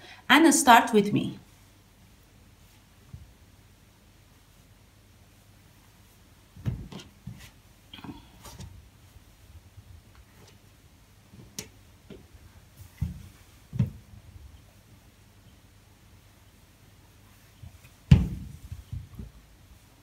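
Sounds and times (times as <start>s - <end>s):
soft thumps of fabric tube: 11.4s - 14.2s.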